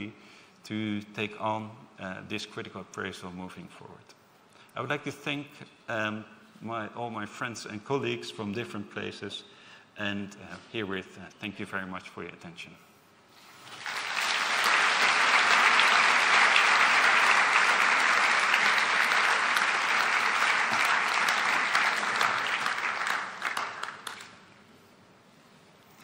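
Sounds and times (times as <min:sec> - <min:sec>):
large audience applauding: 0:13.6 - 0:24.4.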